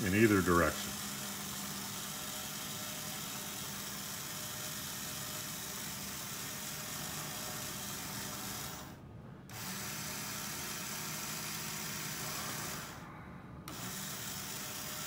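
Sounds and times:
motor whirring through gears: 0.0s - 15.0s
low hum: 12.5s - 14.0s.

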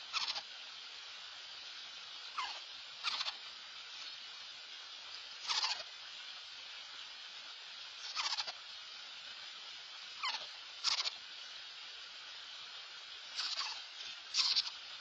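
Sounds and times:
screech owl harsh calls: 0.0s - 0.5s, 2.3s - 3.4s, 5.4s - 5.9s, 8.0s - 8.6s, 10.2s - 11.2s, 13.3s - 14.8s.

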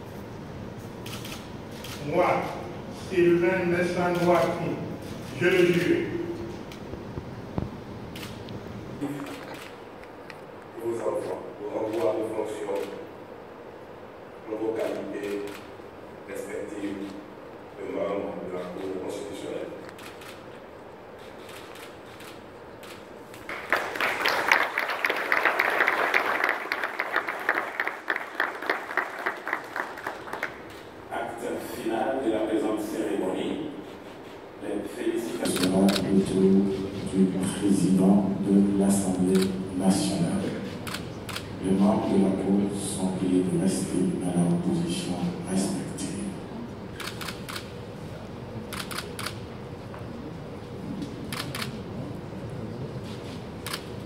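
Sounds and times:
low room murmur: 0.0s - 54.0s
camera shutters clicking: 1.0s - 2.7s, 4.1s - 7.2s, 8.1s - 10.4s, 19.8s - 20.6s, 21.2s - 23.5s, 35.4s - 36.1s, 40.7s - 41.6s, 47.0s - 47.8s, 48.7s - 49.4s, 51.3s - 51.8s, 53.6s - 54.0s
audience applauding: 23.5s - 30.8s.

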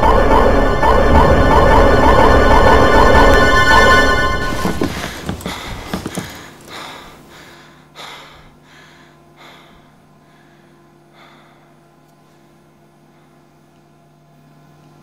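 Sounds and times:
faint steady hum: 0.0s - 15.0s
man gasping for breath: 5.1s - 11.9s.

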